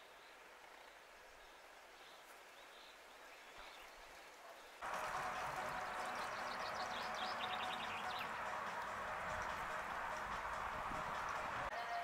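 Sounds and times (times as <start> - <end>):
background hiss: 0.0 - 11.9
birds singing: 0.1 - 12.0
fast bird trill: 5.2 - 8.9.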